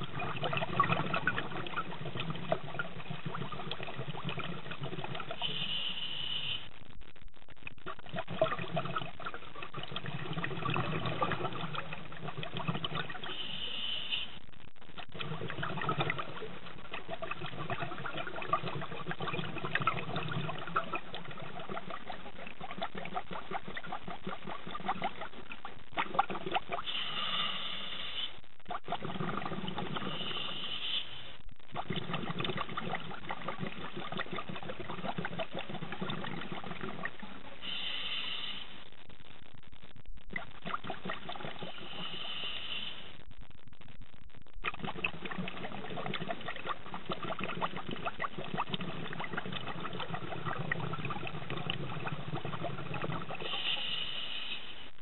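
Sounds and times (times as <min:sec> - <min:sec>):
exhaust bubbles underwater: 0:00.0 - 0:06.6, 0:07.6 - 0:39.3, 0:40.2 - 0:43.2, 0:44.5 - 0:55.0
regulator inhale hiss: 0:05.4 - 0:06.7, 0:13.3 - 0:14.4, 0:26.8 - 0:28.4, 0:30.1 - 0:31.4, 0:37.6 - 0:38.8, 0:41.7 - 0:43.2, 0:53.4 - 0:54.9.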